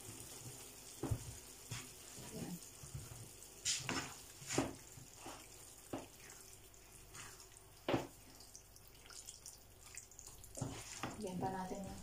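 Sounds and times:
spatula stirring thick sauce: 9.7 - 11.8.

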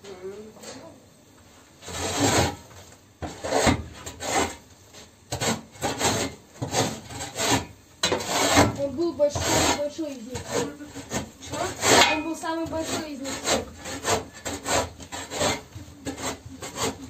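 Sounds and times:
metal shovel scraping dirt: 5.3 - 17.0.

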